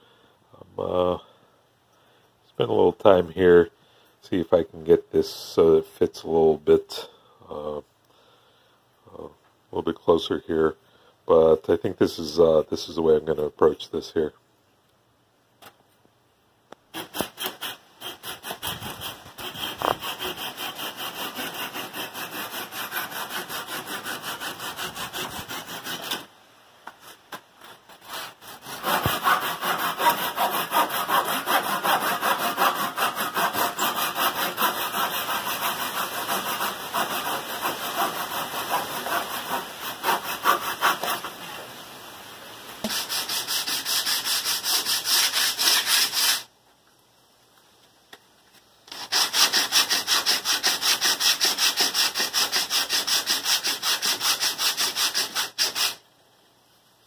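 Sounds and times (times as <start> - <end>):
hand saw cutting wood: 16.9 - 26.3, 27.0 - 41.4, 42.8 - 46.5, 48.9 - 56.0
sanding block rubbing wood: 17.0 - 26.3, 28.0 - 41.4, 42.8 - 46.5, 48.9 - 56.0.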